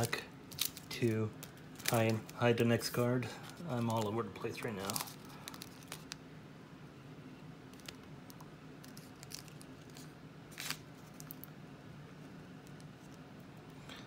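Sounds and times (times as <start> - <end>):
wrapper crinkling and rustling: 0.0 - 6.2, 7.7 - 8.0, 8.8 - 11.5
faint low hum: 0.0 - 14.0.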